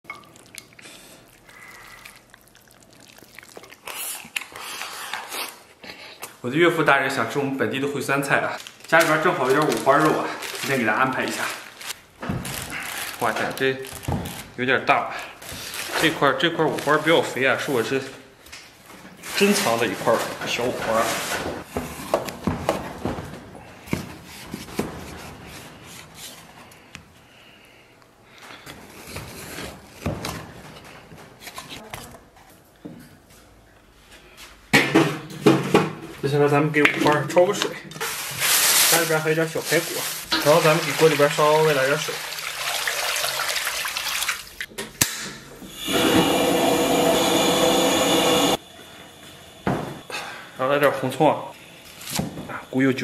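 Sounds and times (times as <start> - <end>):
water splashing into a wok: 40.2 - 44.7
gas burner running: 45.6 - 52.1.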